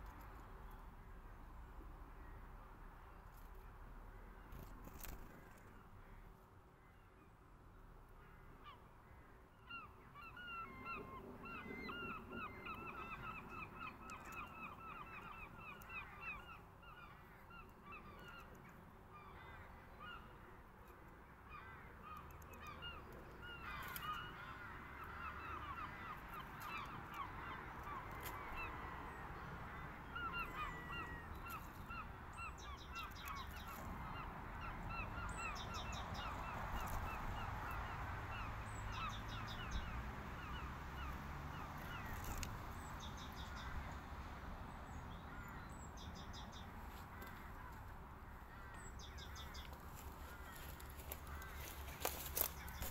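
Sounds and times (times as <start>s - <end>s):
flock of birds calling: 48.5s - 52.9s.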